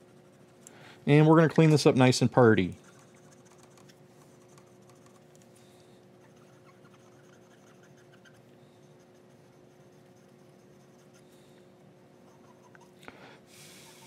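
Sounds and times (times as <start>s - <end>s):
low electrical hum: 0.0s - 14.0s
cotton swab scratching circuit board: 2.7s - 5.3s, 9.0s - 11.2s.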